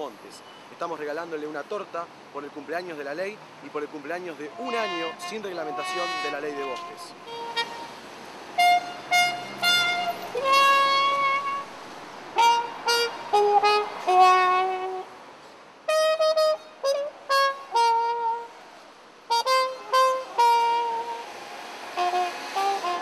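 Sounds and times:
horn-like wind instrument tune: 4.4s - 8.0s, 8.6s - 11.7s, 12.4s - 15.1s, 15.9s - 18.6s, 19.3s - 21.3s, 21.9s - 23.0s.

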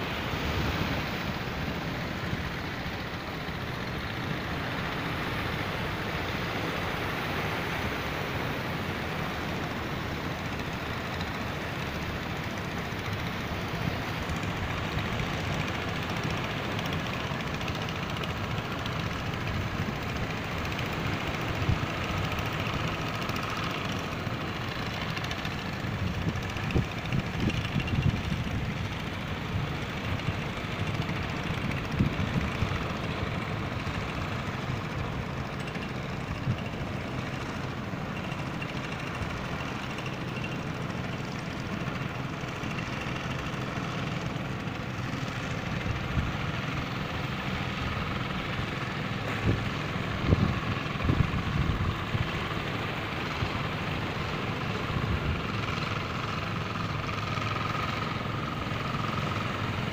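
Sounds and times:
motorboat engine droning: 0.0s - 59.9s
wind buffeting microphone: 49.4s - 52.2s.

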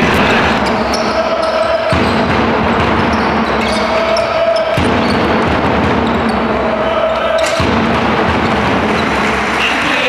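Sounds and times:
basketball bouncing: 0.0s - 6.7s
crowd voices: 0.0s - 10.0s.

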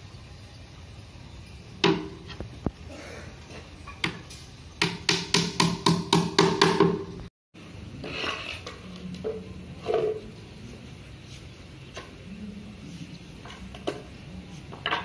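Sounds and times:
hammer nailing wooden board: 4.8s - 7.1s.

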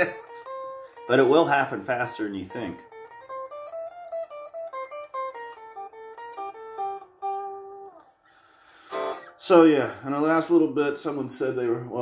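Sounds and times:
unplugged electric guitar notes: 0.0s - 8.0s.

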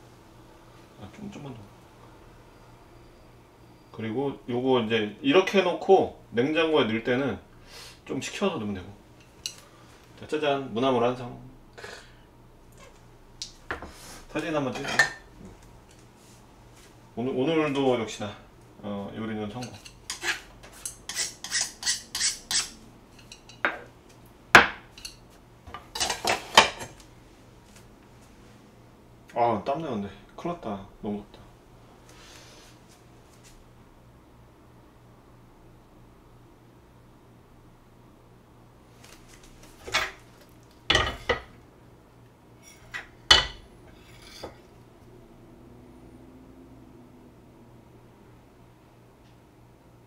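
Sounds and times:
utensils clattering: 25.9s - 26.9s
frying pan scraping on metal grate: 42.6s - 44.6s.

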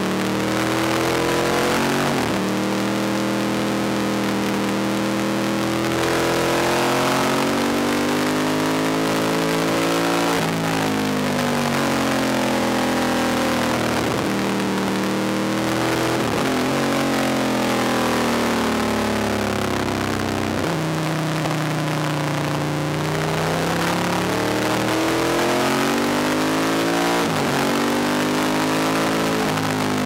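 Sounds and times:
racing motorcycle engine revving: 0.0s - 30.0s.

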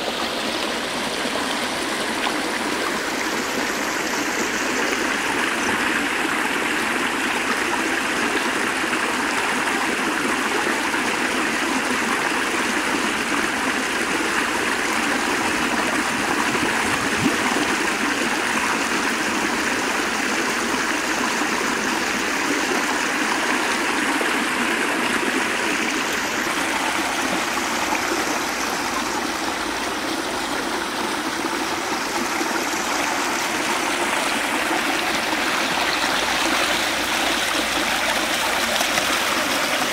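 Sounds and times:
water pouring and splashing: 24.2s - 39.9s.

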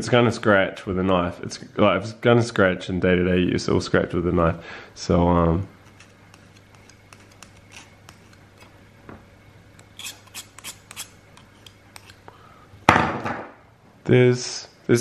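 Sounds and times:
knife blade scratching ring: 5.9s - 8.4s, 9.8s - 12.2s.

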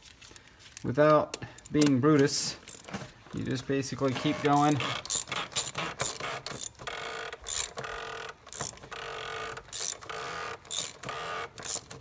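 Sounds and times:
ratchet wrench clicking: 4.6s - 12.0s.

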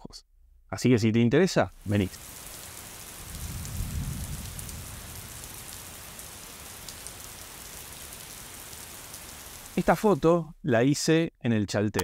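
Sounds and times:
steady rain falling: 1.6s - 10.4s
low rumble of thunder: 3.1s - 8.2s.

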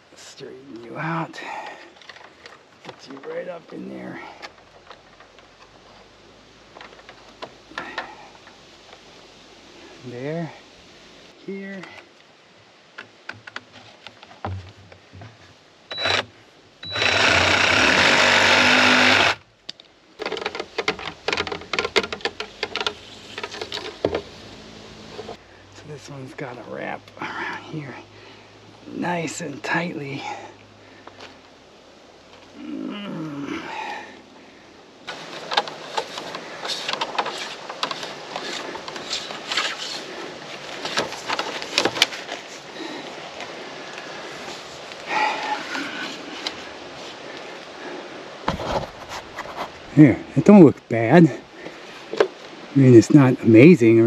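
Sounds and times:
reciprocating saw cutting: 16.0s - 19.4s
plastic conduit clicking and knocking: 20.2s - 24.2s.

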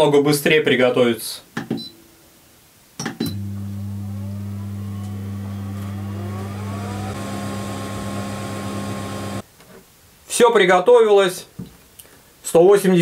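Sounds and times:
motor humming: 3.3s - 9.4s
rising whine: 3.3s - 9.4s.

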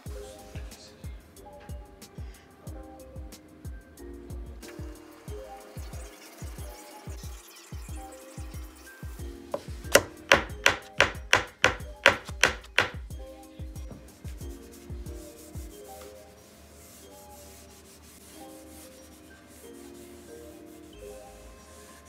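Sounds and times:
background music: 0.0s - 22.0s
small hammer tapping wood: 9.6s - 13.0s
sandpaper rubbing on wood: 14.6s - 22.0s.

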